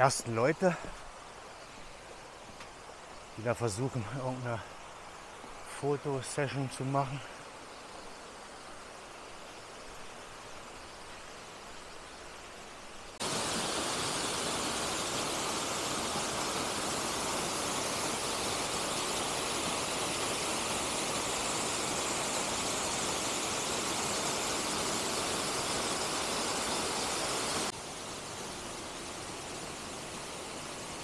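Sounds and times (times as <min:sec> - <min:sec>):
waterfall rushing: 0:13.2 - 0:31.0.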